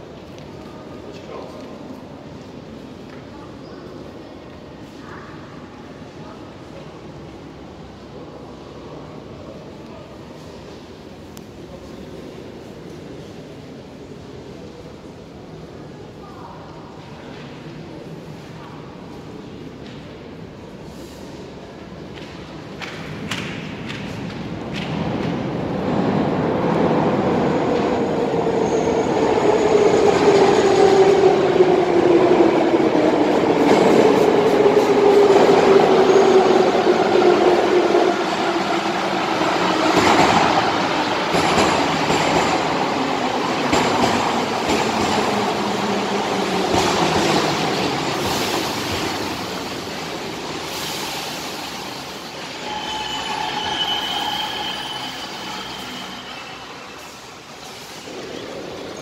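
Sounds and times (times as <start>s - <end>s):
train braking whine: 50.8s - 57.9s
brief high tones: 52.5s - 57.2s.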